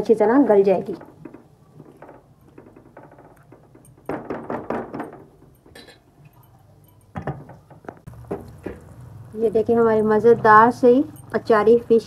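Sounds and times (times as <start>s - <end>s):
spatula knocking pan: 7.2s - 8.9s.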